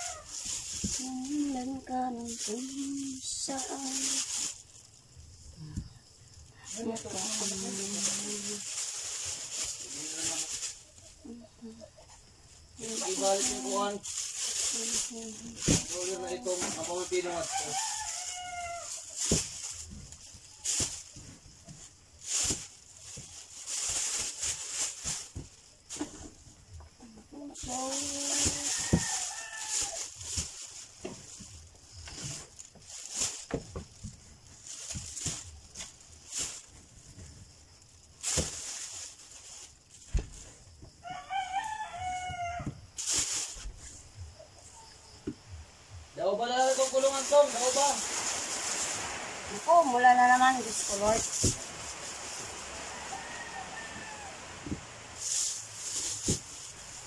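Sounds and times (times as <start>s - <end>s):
rooster crowing: 0.0s - 0.5s, 17.4s - 19.0s, 28.4s - 30.2s, 41.0s - 42.8s, 52.6s - 54.8s
branches rustling: 0.0s - 57.0s
fruit dropped into plastic bag: 27.8s - 37.5s, 38.2s - 43.9s, 50.6s - 57.0s.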